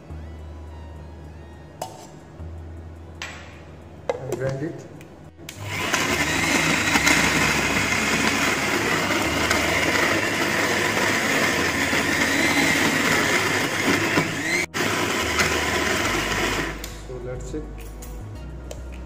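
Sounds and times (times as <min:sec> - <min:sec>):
mixer grinder running: 0:05.5 - 0:17.0.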